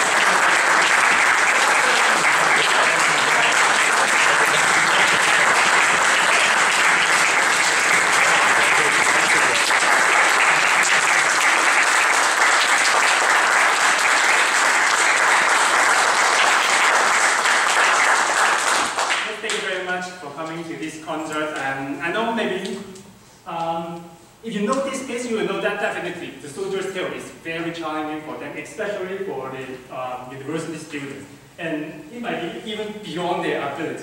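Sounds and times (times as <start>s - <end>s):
audience applauding: 0.0s - 19.6s.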